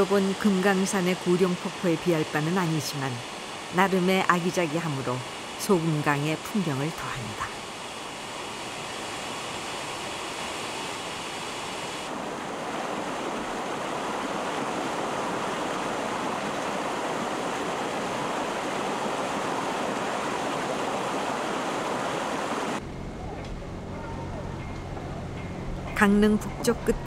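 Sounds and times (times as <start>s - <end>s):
waterfall rushing over rock: 7.6s - 22.8s.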